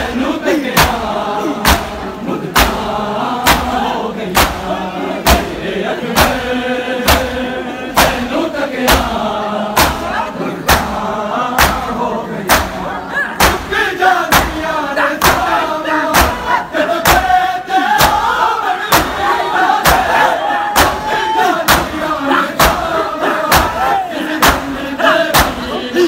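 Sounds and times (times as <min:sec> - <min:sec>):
crowd chanting a lament: 0:00.0 - 0:26.0
hands slapping chests: 0:01.6 - 0:02.0, 0:02.6 - 0:05.5, 0:08.0 - 0:08.3, 0:09.8 - 0:10.1, 0:11.6 - 0:11.9, 0:12.5 - 0:12.8, 0:20.8 - 0:22.0, 0:23.5 - 0:24.7, 0:25.3 - 0:25.6.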